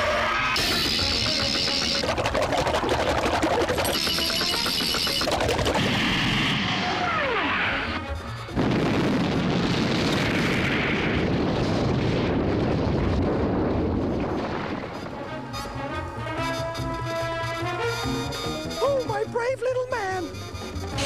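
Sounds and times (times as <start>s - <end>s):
loud rumbling crash: 8.5s - 16.4s.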